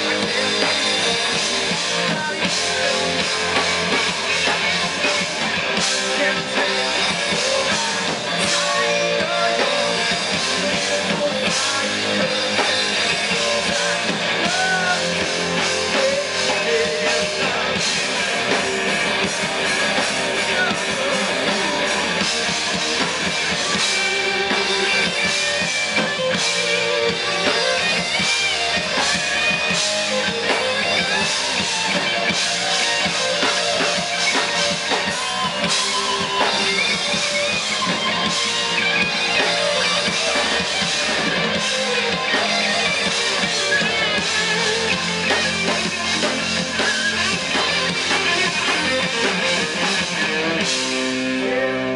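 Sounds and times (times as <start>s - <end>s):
live rock band playing: 0.0s - 51.9s.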